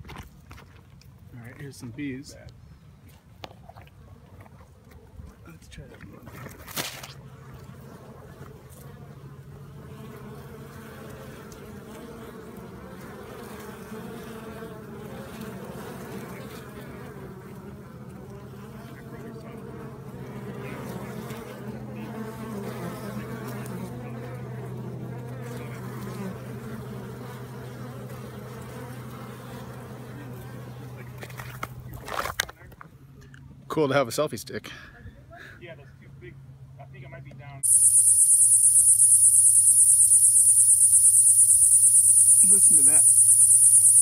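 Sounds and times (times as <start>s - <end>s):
bees buzzing: 37.6s - 44.0s.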